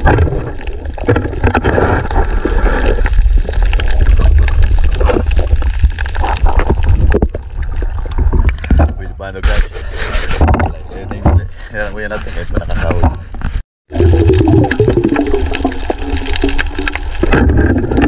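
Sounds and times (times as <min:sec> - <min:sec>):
underwater rumble: 0:00.0 - 0:09.1, 0:13.9 - 0:18.0
water gurgling and sloshing: 0:00.0 - 0:09.2, 0:13.9 - 0:18.0.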